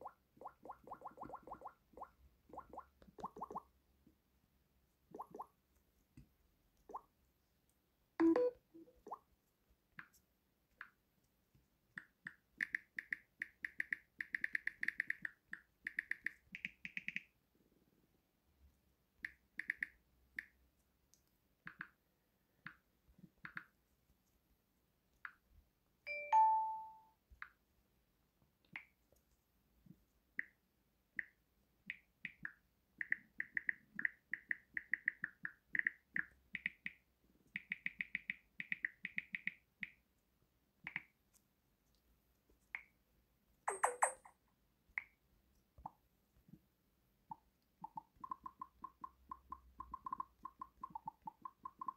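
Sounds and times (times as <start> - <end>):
phone system touch tone: 8.2 - 8.6.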